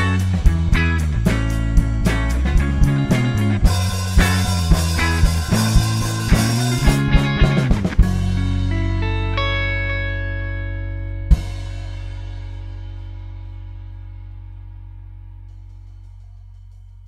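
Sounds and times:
drum kit hits: 0.0 - 9.1
rock band playing: 0.0 - 13.4
sustained guitar chords: 0.0 - 15.5.

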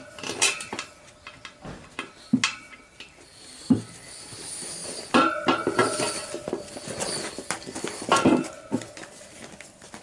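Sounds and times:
rubber inner tube rubbing and squeaking: 3.2 - 9.1.

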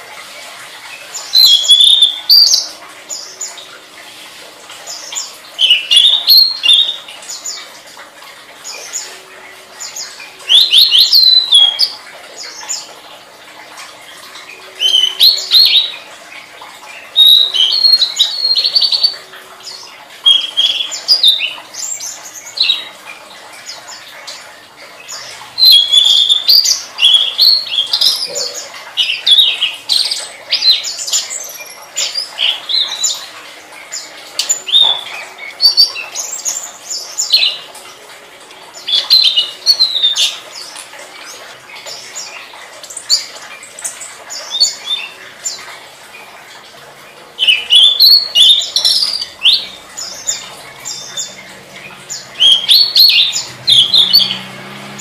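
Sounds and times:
bird twittering chirps: 47.4 - 55.0.

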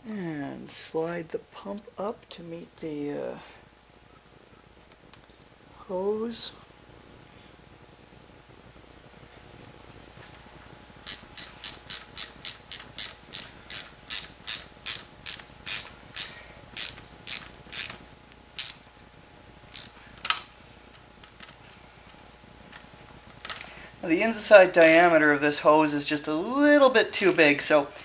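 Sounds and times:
hand ratchet clicking: 11.0 - 18.0, 18.6 - 18.8, 19.7 - 20.4, 24.7 - 25.2, 27.1 - 27.4.

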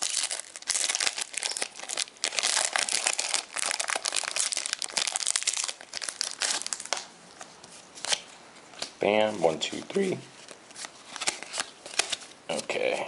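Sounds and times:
foil wrapper crinkling: 0.0 - 7.1.

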